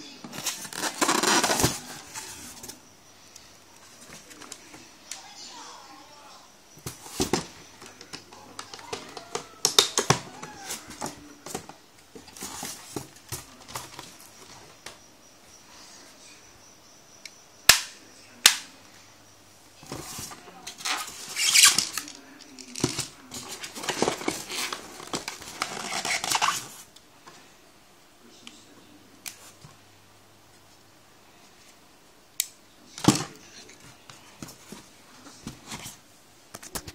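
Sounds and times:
scraping against foam packing: 0.4 - 2.8
plastic parts clicking and knocking: 6.8 - 14.0, 20.7 - 26.6.

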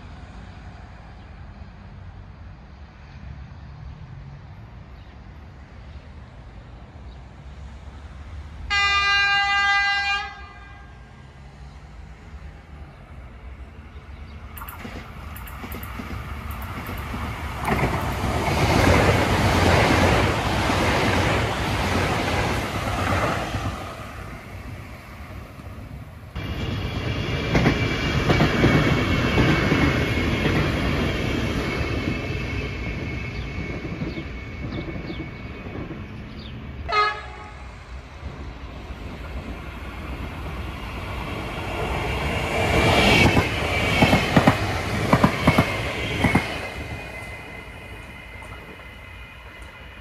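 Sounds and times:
train horn toot: 8.7 - 11.0, 36.8 - 37.8
train wheels rumbling on rail: 11.4 - 50.0.

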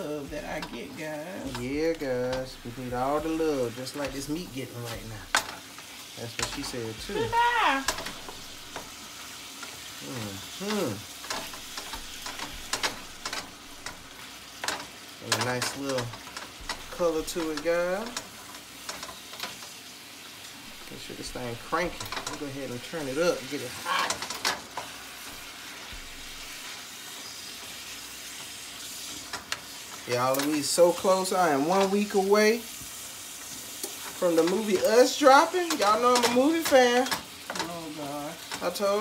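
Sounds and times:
meat sizzling in a skillet: 0.0 - 39.0
metal utensil scraping a pan: 0.3 - 19.8, 20.4 - 32.2
person humming: 10.0 - 11.1.

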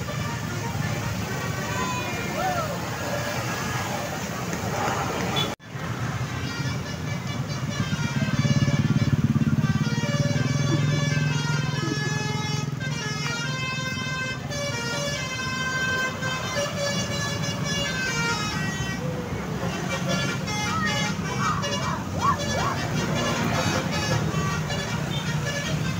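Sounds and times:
bus musical horn melody: 0.0 - 3.7, 5.4 - 25.9
passing engine running: 0.0 - 25.9.

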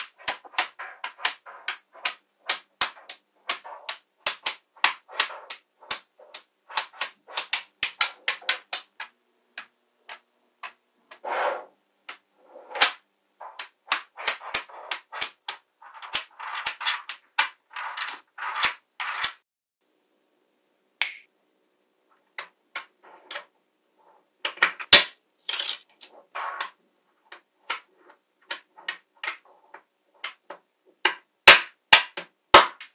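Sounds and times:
magnetic balls clicking: 0.0 - 11.2, 12.8 - 19.4.

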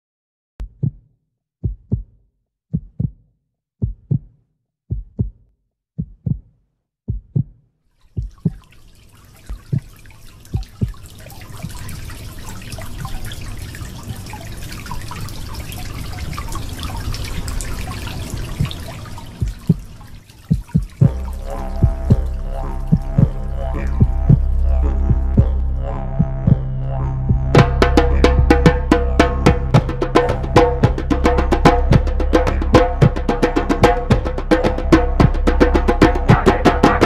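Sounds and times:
heartbeat thumps: 0.6 - 1.0, 1.6 - 7.6, 8.2 - 8.7, 9.5 - 9.9, 10.6 - 11.9, 18.6 - 37.0.

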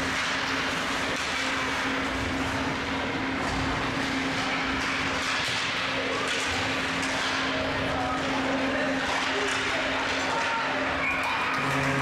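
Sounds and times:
clicks of sticks and puck: 0.0 - 1.8, 4.4 - 7.6, 9.0 - 12.0.

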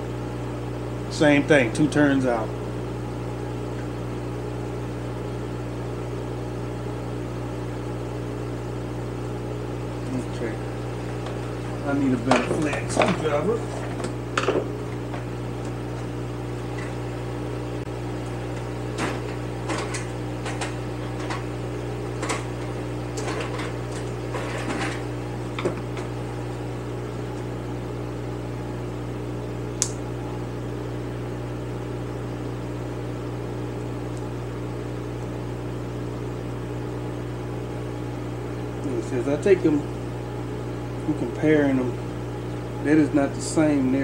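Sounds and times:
electric motor hum: 0.0 - 44.0
sharp click: 29.8 - 30.0.

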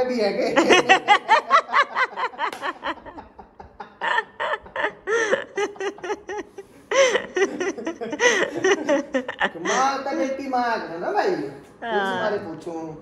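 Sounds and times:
people laughing: 0.5 - 10.4.

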